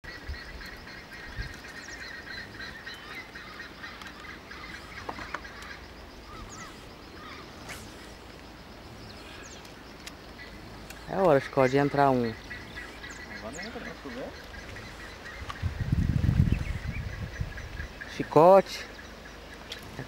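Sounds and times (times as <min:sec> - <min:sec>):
chorus of wetland animal calls: 0:00.1 - 0:16.0.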